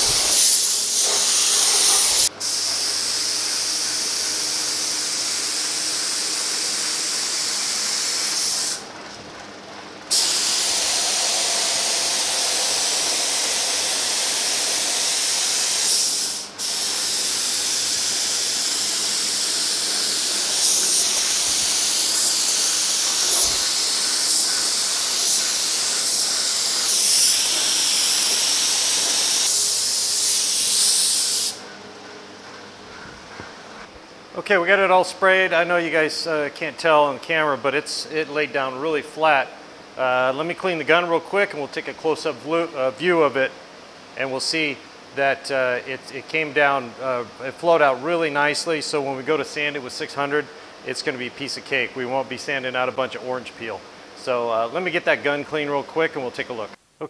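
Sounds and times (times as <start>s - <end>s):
spray gun hissing: 0.0s - 8.9s, 10.1s - 31.6s.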